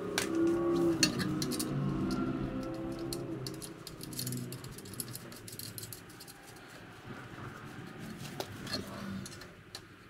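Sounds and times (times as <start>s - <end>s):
metal parts clicking: 0.2s - 6.8s.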